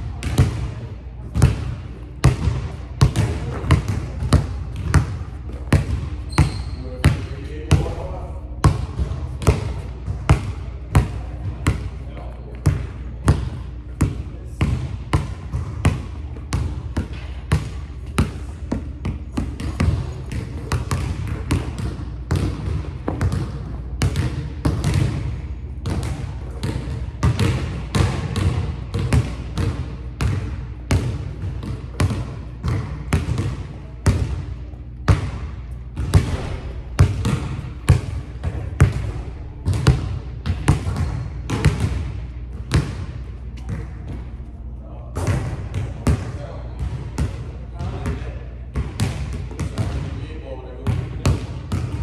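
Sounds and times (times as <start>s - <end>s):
basketball bouncing on wooden floor: 1.3s - 11.8s, 12.6s - 34.4s, 35.1s - 44.3s.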